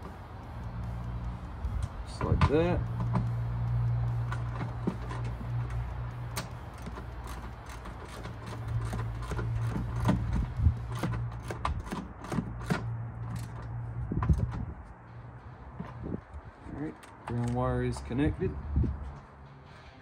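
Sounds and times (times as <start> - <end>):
steady low hum: 0.0 - 11.9
hand ratchet clicking: 0.0 - 14.8.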